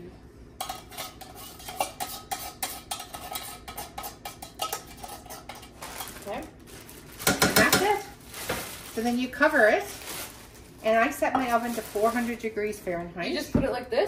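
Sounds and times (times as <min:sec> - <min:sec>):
spoon scraping inside tin can: 0:00.6 - 0:06.2.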